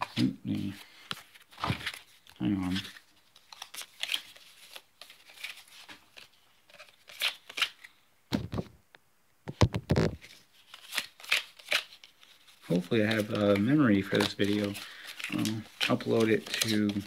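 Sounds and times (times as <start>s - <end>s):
cards sliding and flicking: 2.7s - 8.6s, 9.5s - 17.0s
dull thumps: 9.5s - 10.2s.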